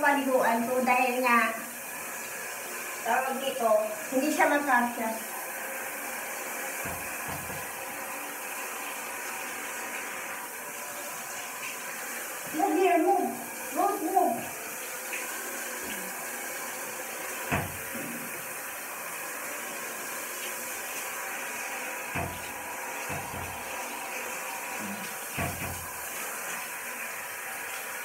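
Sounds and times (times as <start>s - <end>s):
shower head spraying water: 0.0s - 28.0s
short knocks: 6.8s - 7.7s.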